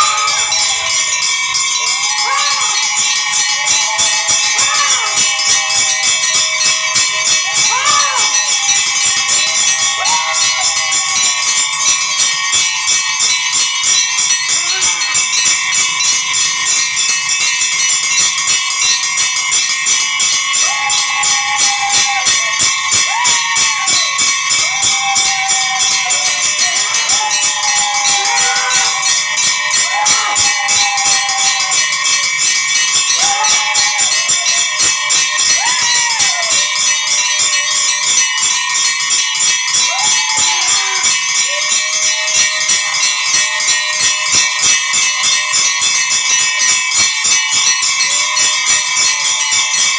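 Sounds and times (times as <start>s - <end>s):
temple bells ringing: 0.0s - 49.9s
person singing: 20.7s - 36.9s.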